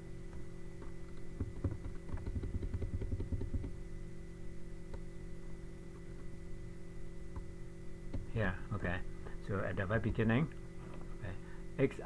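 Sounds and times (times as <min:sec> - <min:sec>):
low electrical hum: 0:00.0 - 0:12.0
keyboard keys tapping: 0:00.8 - 0:03.8.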